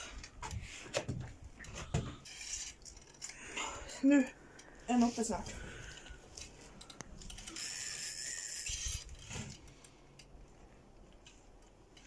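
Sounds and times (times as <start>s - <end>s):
fishing reel whirring: 7.3s - 9.3s.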